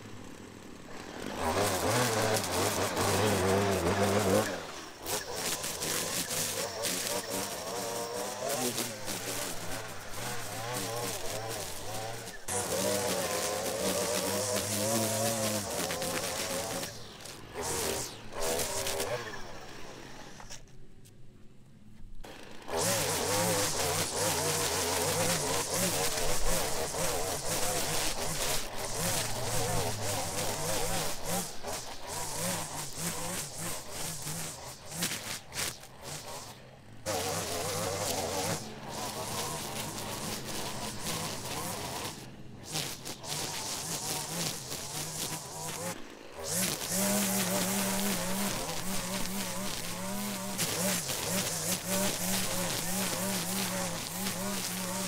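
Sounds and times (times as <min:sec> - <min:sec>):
string trimmer engine whine: 0:00.0 - 0:55.0
trimmer line whipping through grass: 0:00.8 - 0:20.7, 0:22.2 - 0:55.0.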